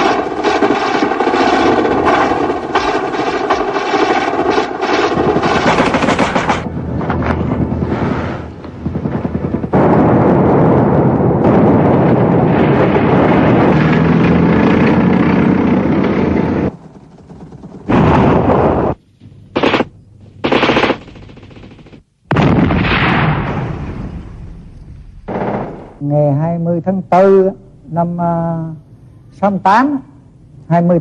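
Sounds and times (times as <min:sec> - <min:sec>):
automatic gunfire: 0:00.0 - 0:06.7, 0:19.6 - 0:22.5.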